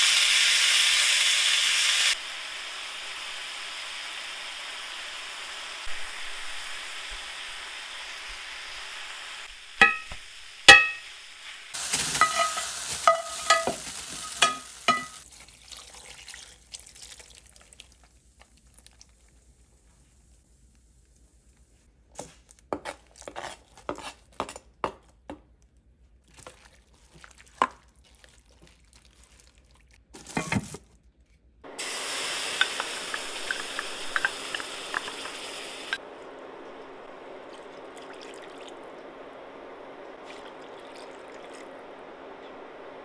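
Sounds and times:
pan sizzling: 0.0s - 15.3s, 31.6s - 43.0s
utensils and cookware clattering: 9.8s - 11.0s, 11.8s - 15.2s.

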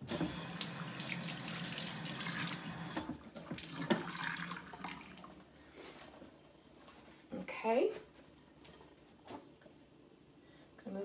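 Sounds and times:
faucet running water into sink: 0.0s - 5.4s.

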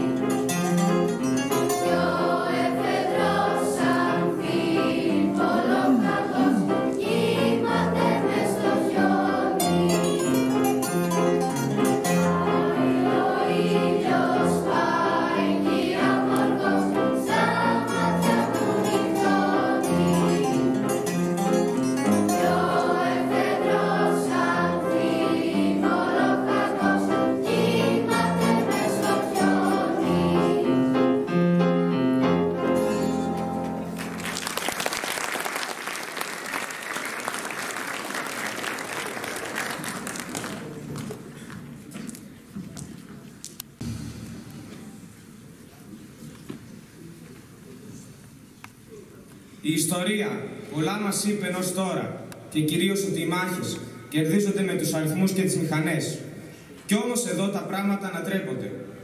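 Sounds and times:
plucked string instruments: 0.0s - 3.4s, 8.3s - 13.4s, 16.1s - 24.1s, 32.5s - 34.3s
piano: 0.0s - 47.9s
mixed choir singing: 1.7s - 10.3s, 11.9s - 21.1s, 22.1s - 31.5s.

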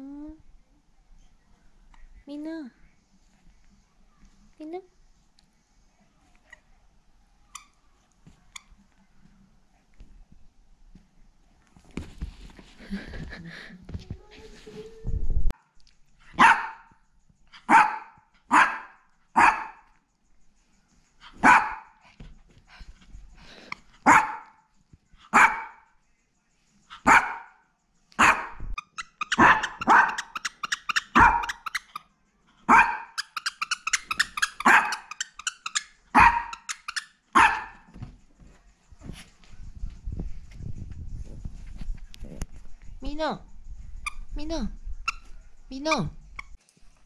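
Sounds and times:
small dog barking sharply: 16.4s - 16.9s, 17.7s - 19.8s, 21.4s - 21.9s, 24.1s - 24.5s, 25.3s - 25.8s, 27.0s - 27.5s, 28.2s - 28.5s, 29.4s - 30.4s, 31.1s - 31.6s, 32.7s - 33.2s, 34.6s - 35.1s, 36.1s - 36.7s, 37.4s - 37.8s.

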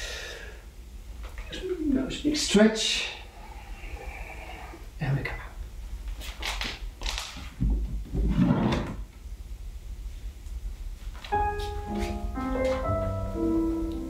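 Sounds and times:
piano accompaniment: 11.3s - 14.0s.

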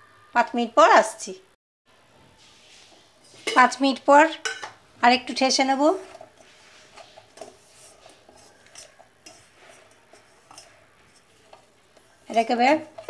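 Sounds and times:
dough kneaded by hand: 5.6s - 13.0s.

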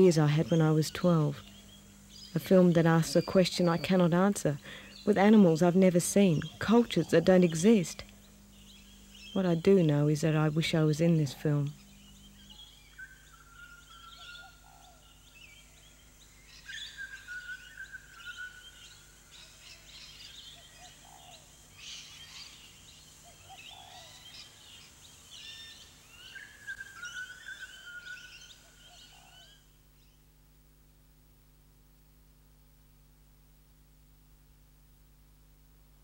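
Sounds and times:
birds chirping and whistling: 11.8s - 29.6s.

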